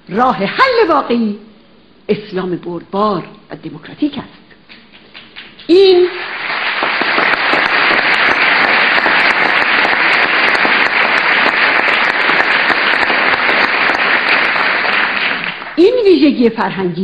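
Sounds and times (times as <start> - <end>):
audience applauding: 4.9 - 15.8.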